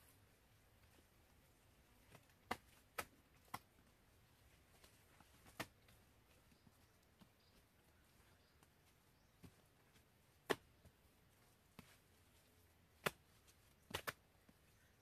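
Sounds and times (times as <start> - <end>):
dry twigs snapping underfoot: 13.0 - 14.2.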